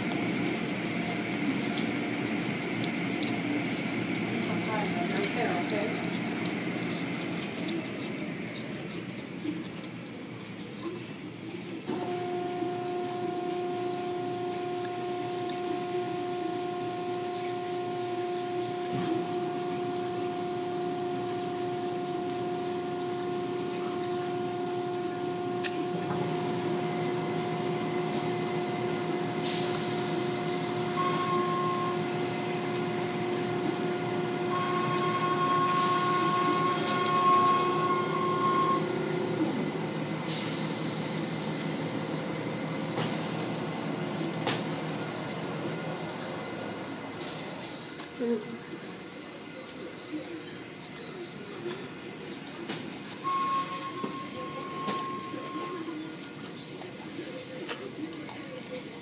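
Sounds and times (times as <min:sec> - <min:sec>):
car wash motor hum: 0:00.0 - 0:59.0
held machine tone: 0:11.9 - 0:39.7, 0:53.2 - 0:56.7.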